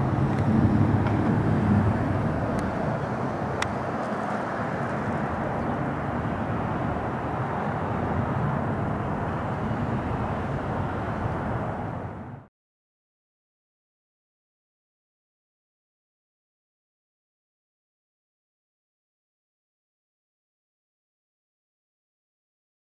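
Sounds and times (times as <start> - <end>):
distant jet rumble: 0.0 - 12.5.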